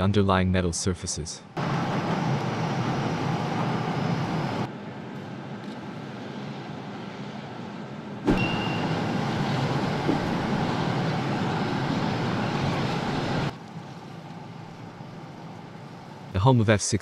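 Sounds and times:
steady machinery noise: 1.6 - 7.1, 8.3 - 16.4.

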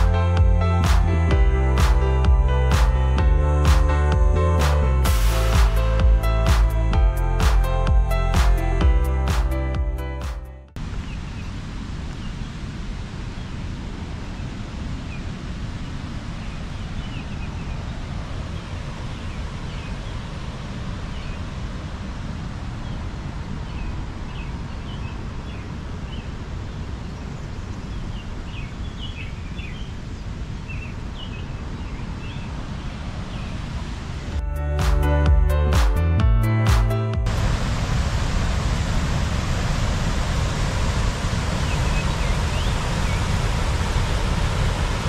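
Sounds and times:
low rushing noise: 0.0 - 10.1, 37.2 - 45.0
small birds chirping: 23.6 - 33.6, 41.6 - 43.5.

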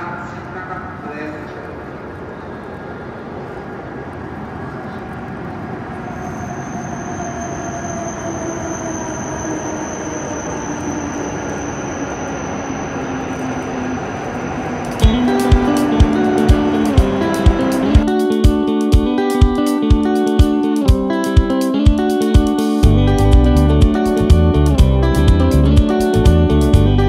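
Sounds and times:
train rumbling: 0.0 - 20.6
steady high whine: 1.7 - 20.7
falling brake whine: 5.8 - 18.5
guitar music: 15.0 - 27.0.

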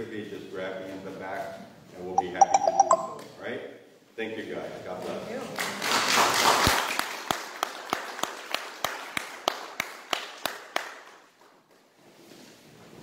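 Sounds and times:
applause: 5.5 - 11.6.

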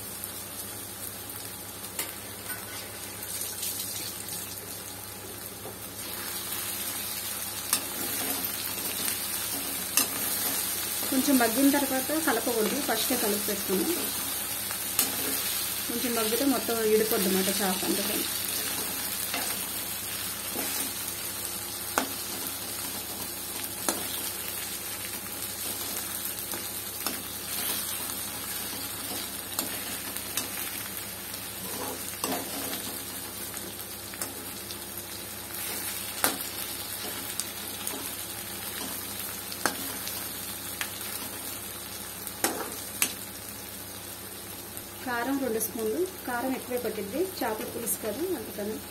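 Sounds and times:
food sizzling in oil: 0.0 - 48.9
spoon scraping against pan: 31.6 - 32.8.

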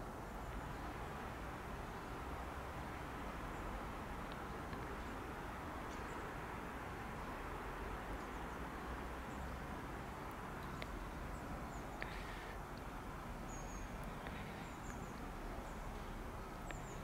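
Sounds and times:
outdoor background hum: 0.0 - 17.0
small birds chirping: 0.0 - 17.0
faint clicks: 4.2 - 5.2, 10.2 - 15.4, 16.0 - 17.0.

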